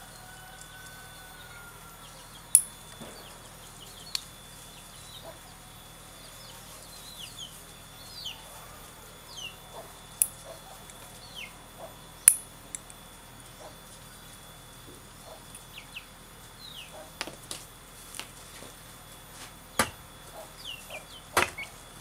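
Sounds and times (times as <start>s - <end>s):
birds chirping: 0.0s - 12.4s, 13.4s - 17.3s, 19.6s - 22.0s.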